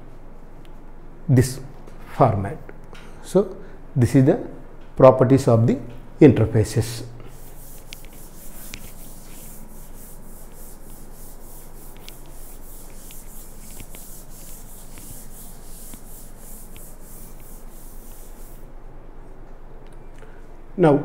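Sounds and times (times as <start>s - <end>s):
hand rubbing whiteboard: 7.3s - 18.7s.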